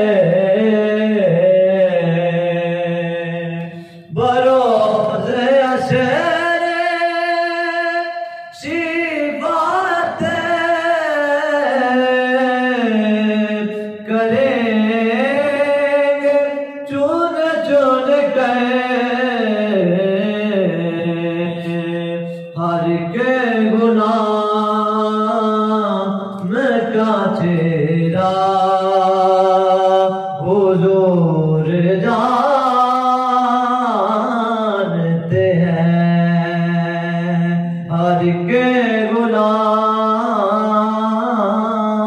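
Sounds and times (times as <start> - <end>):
person singing devotional song: 0.0 - 42.0
singer breathing: 3.6 - 4.2, 8.2 - 8.6, 13.7 - 14.0, 22.2 - 22.6.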